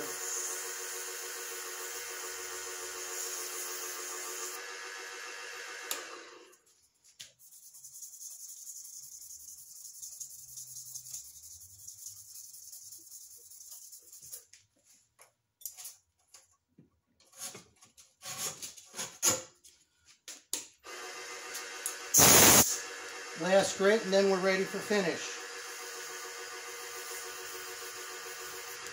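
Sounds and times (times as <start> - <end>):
sandpaper hissing on lathe: 0.0 - 4.6, 22.0 - 28.9
compressed air blast: 22.1 - 22.9.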